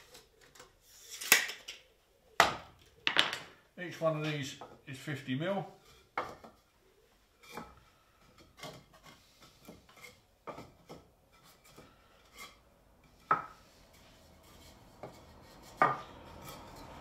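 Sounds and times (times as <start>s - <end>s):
wooden slats knocking: 3.1s - 3.5s.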